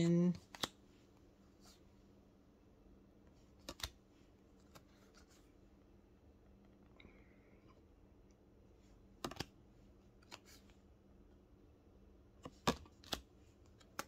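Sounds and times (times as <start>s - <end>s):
faint steady hum: 0.0s - 14.0s
cards clicking and snapping: 0.4s - 0.8s, 3.5s - 4.0s, 4.6s - 5.2s, 9.2s - 9.6s, 10.2s - 10.6s, 12.4s - 14.0s.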